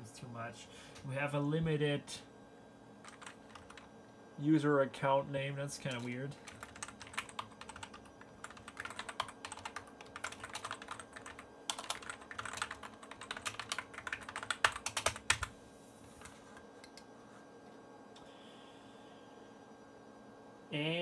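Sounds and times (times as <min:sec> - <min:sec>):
faint steady hum: 0:00.0 - 0:21.0
typing on computer keyboard: 0:03.0 - 0:03.9, 0:05.9 - 0:15.5.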